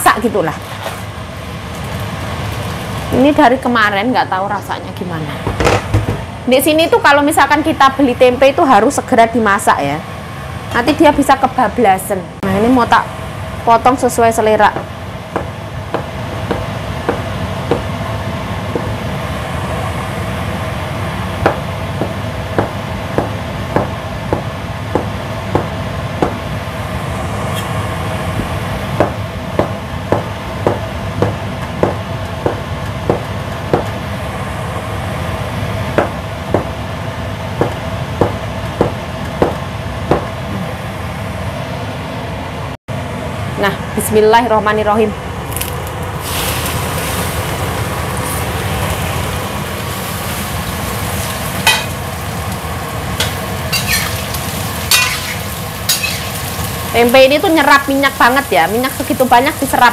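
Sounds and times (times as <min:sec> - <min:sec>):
steady machine hum: 0:00.0 - 0:59.9
knife chopping on cutting board: 0:14.8 - 0:17.9, 0:21.4 - 0:26.4, 0:29.0 - 0:34.0, 0:36.0 - 0:36.8, 0:37.6 - 0:40.3.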